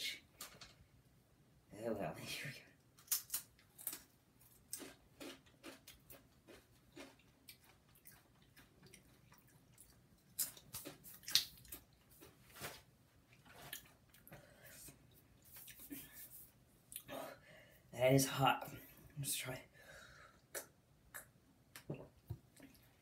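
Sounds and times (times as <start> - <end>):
person chewing crisp chip: 3.0 - 12.4.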